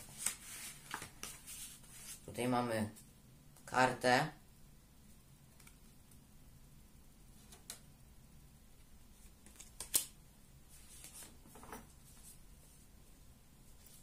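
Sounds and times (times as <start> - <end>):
paper rustling: 0.0 - 2.2, 10.7 - 12.8.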